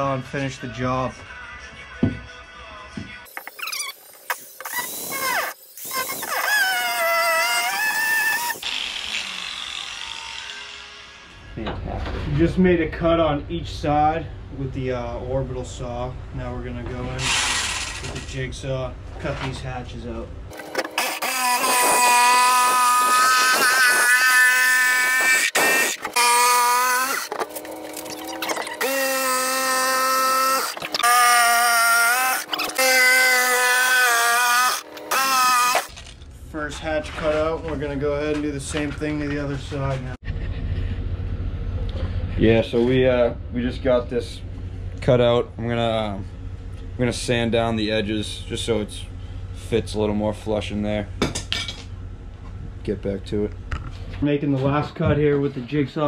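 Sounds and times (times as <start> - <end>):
angle grinder cutting wood: 3.3 - 11.6, 17.2 - 18.1, 20.5 - 36.0.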